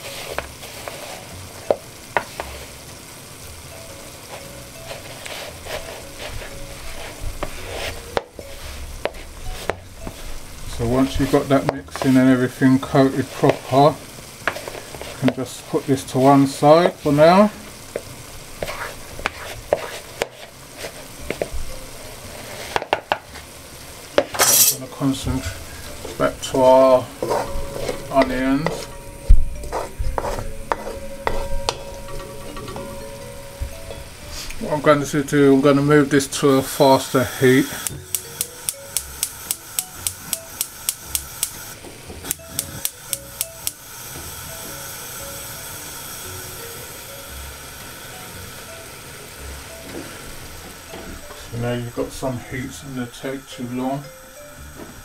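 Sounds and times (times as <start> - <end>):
gas burner flame hissing: 0.0 - 55.0
spoon scraping bowl: 27.2 - 29.0, 29.6 - 32.8
spoon stirring in plastic bowl: 27.2 - 29.0, 29.6 - 32.8
gas hob igniter clicking: 37.6 - 45.0.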